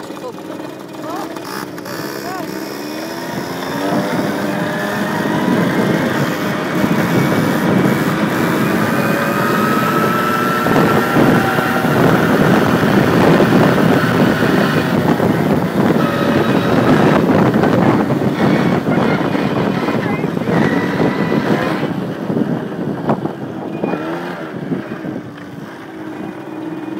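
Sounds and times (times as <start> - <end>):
dirt bike engine running hard: 0.0 - 26.9.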